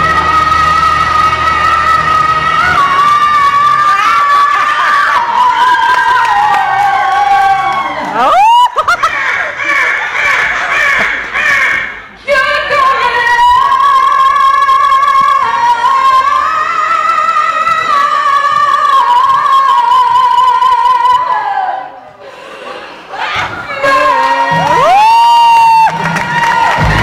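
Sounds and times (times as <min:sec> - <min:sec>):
woman singing into a microphone: 0:00.0 - 0:06.5, 0:12.2 - 0:21.9.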